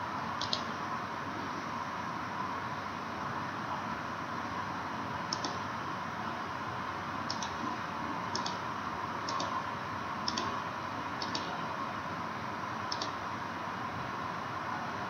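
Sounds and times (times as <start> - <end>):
computer mouse button clicking: 0.4 - 0.7, 5.3 - 5.6, 7.3 - 7.6, 8.3 - 8.6, 9.3 - 9.5, 10.3 - 10.5, 11.2 - 11.5, 12.9 - 13.2.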